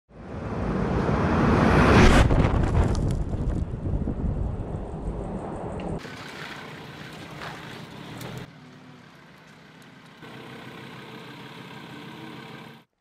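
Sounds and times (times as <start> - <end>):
steady engine-like hum: 4.6 - 12.9.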